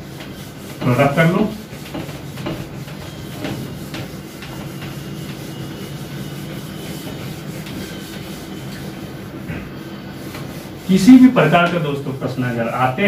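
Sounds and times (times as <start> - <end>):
steady low hum: 0.0 - 13.0
whiteboard duster wiping board: 0.0 - 13.0.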